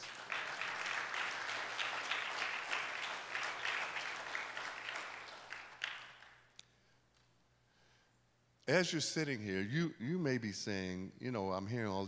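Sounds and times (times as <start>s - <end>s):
congregation applauding: 0.0s - 6.5s.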